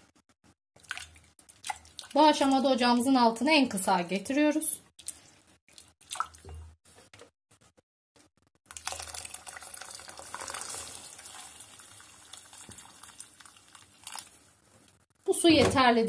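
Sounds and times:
hot water pouring into pot: 0:08.7 - 0:14.5.

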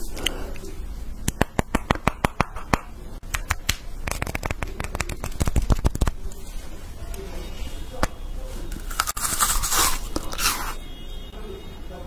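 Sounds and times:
hard fruits clicking together: 0:01.2 - 0:06.2.

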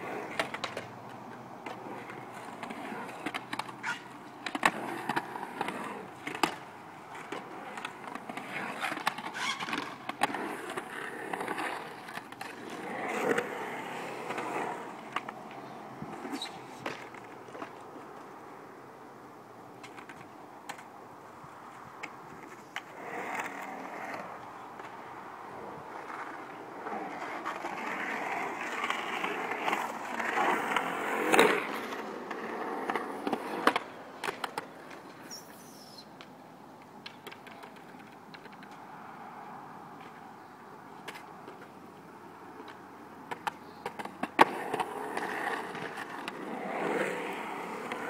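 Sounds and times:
skateboard clacking on concrete: 0:00.0 - 0:18.8, 0:19.6 - 0:48.0
skateboard wheels rolling on concrete: 0:00.0 - 0:48.0.

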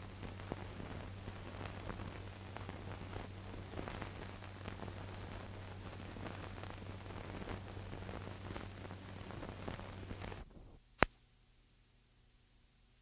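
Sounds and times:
film hiss and crackle: 0:00.0 - 0:13.0
steady low hum: 0:00.0 - 0:13.0
sharp click: 0:11.0 - 0:11.2.

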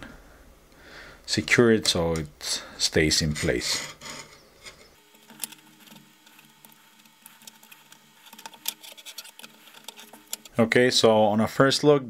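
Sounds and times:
plastic parts clicking and tapping: 0:04.0 - 0:10.5.

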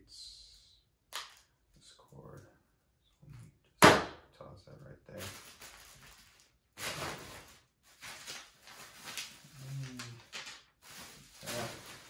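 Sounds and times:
plastic packing material crinkling: 0:05.1 - 0:12.0.

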